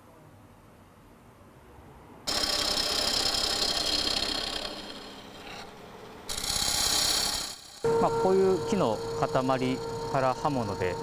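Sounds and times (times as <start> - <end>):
gouge cutting wood on a lathe: 2.3 - 11.0.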